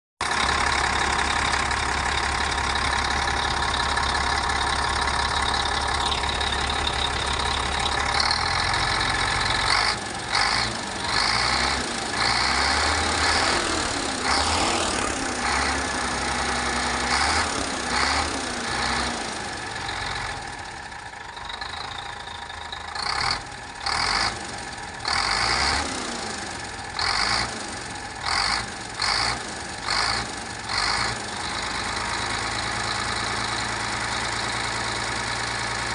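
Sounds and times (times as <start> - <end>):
diesel engine running: 0.2 - 35.9.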